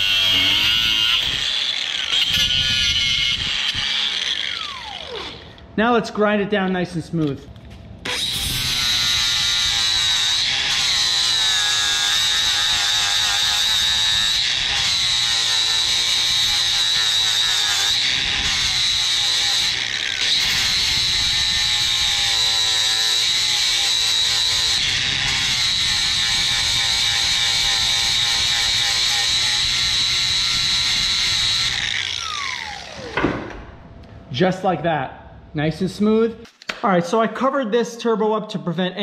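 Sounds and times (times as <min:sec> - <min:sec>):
angle grinder grinding steel: 0:00.0 - 0:05.6, 0:08.0 - 0:33.2.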